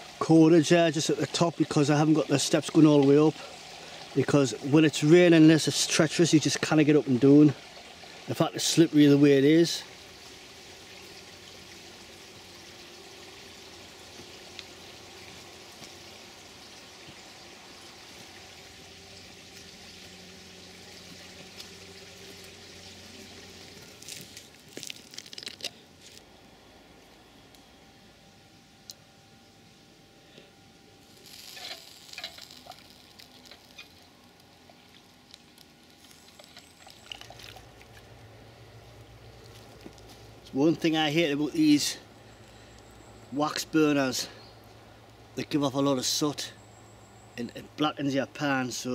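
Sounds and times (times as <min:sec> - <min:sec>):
stream running: 0:00.0 - 0:26.2, 0:31.0 - 0:48.9
water swishing: 0:31.5 - 0:38.3.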